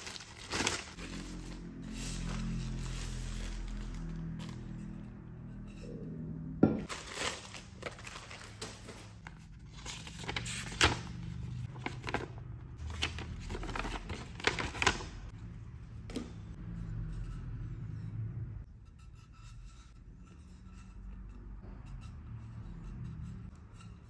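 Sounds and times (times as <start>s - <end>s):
plastic bag crinkling: 0.0s - 1.6s, 6.9s - 10.9s
paper leaflet rustling: 6.8s - 15.2s.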